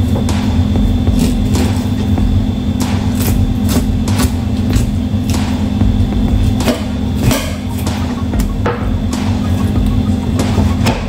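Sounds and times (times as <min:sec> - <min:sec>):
low mechanical hum: 0:00.0 - 0:11.0
knife tapping and scraping fish: 0:03.1 - 0:05.5.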